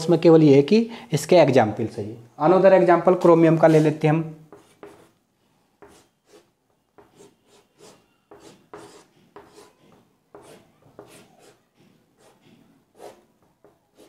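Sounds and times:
chalk scratching on blackboard: 3.6 - 5.2, 5.8 - 14.0.

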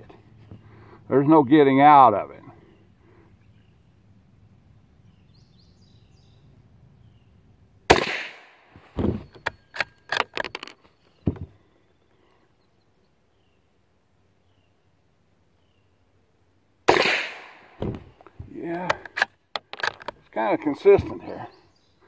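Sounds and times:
rifle shot: 7.9 - 9.2, 16.9 - 18.1
rifle bolt metallic clicks: 17.0 - 20.2.

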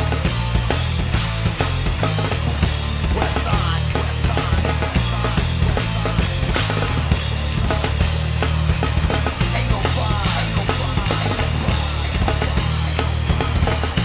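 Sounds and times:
bass guitar: 0.0 - 14.0
drum kit pounding: 0.0 - 14.0
electric guitar: 0.0 - 14.0
singer shouting into microphone: 3.2 - 5.4.

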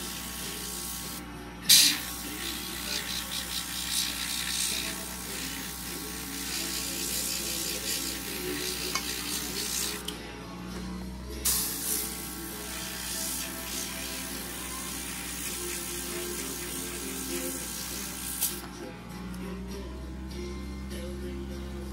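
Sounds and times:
airbrush hissing: 0.0 - 10.1, 11.4 - 18.6.

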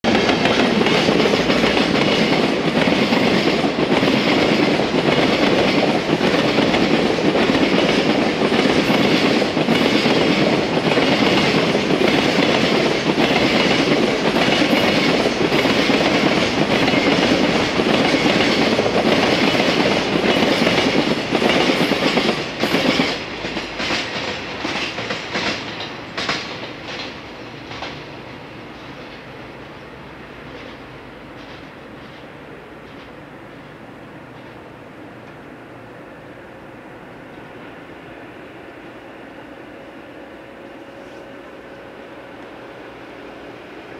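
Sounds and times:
freight train wheels clattering: 0.0 - 28.1, 30.4 - 33.2.

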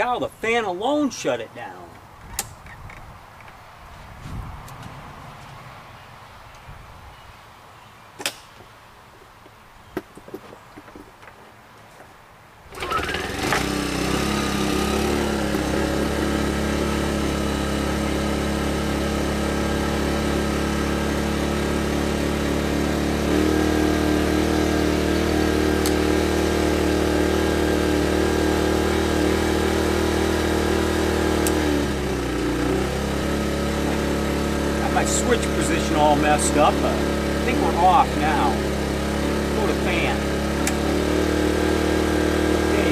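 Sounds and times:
generator running: 12.7 - 42.9.

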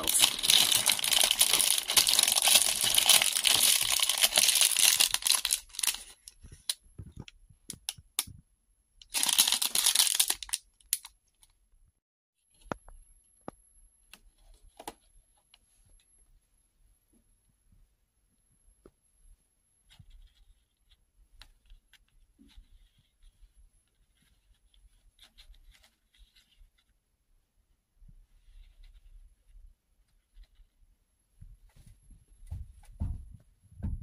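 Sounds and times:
packaging crinkling and tearing: 0.0 - 6.8, 9.0 - 11.5.

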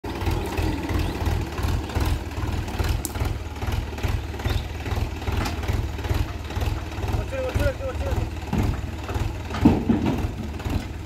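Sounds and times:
tractor diesel engine idling: 0.0 - 11.0.

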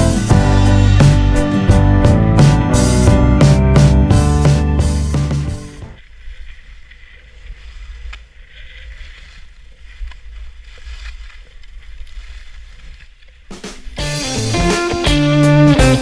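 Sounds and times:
wind rumbling on microphone: 5.9 - 14.0
skis scraping over snow: 6.0 - 14.0.

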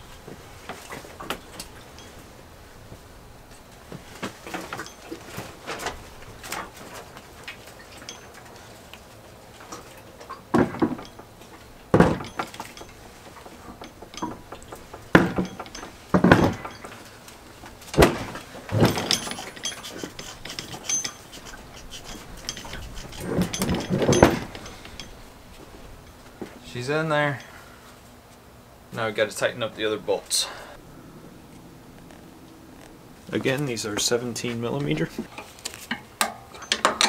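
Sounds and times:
metal clunks and knocks: 9.6 - 26.5.

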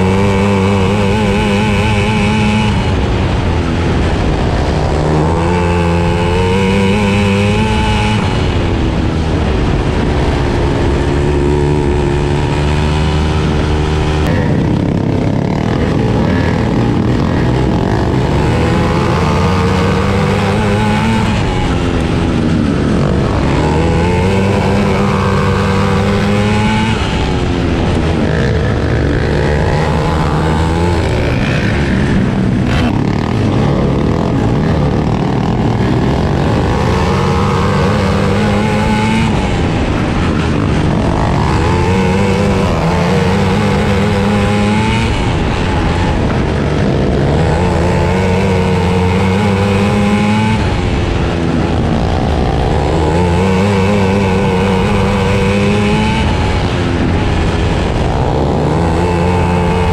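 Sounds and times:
kart engine racing: 0.0 - 59.9.

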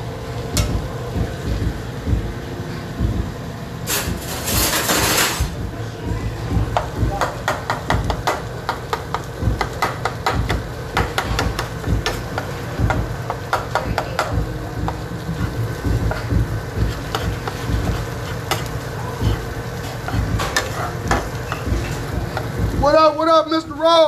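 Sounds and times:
low steady rumble: 0.0 - 7.3, 13.9 - 23.1.

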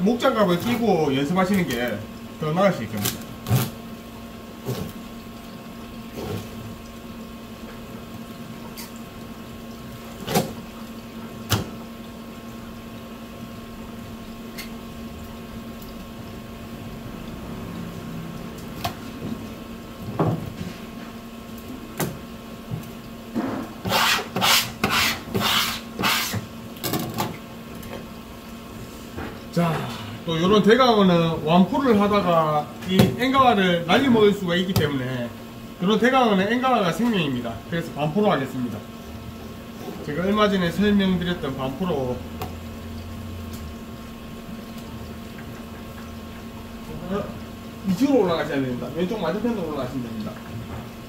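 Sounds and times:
steady electrical hum: 0.0 - 51.0
scraping strokes on board: 23.8 - 26.4.

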